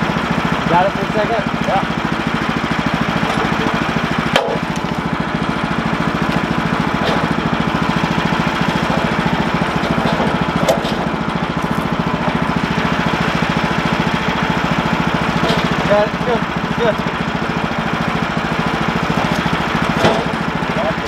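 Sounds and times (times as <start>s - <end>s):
gas engine idling: 0.0s - 21.0s
wood knocking against steel: 4.3s - 5.0s, 8.6s - 12.4s, 15.4s - 15.9s, 19.2s - 20.5s.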